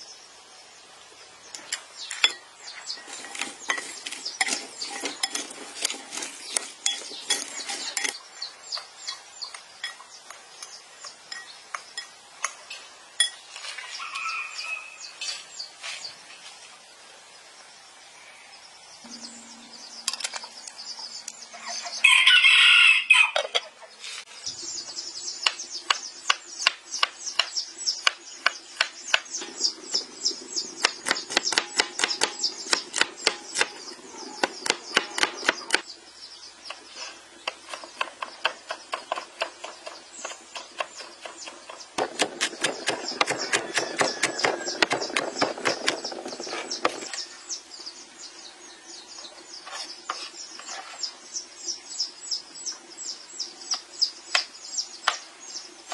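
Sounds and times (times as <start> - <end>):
rooster crowing: 22.0 - 23.5
cleaver chopping garlic on board: 30.8 - 33.8, 34.4 - 35.8, 37.5 - 46.0.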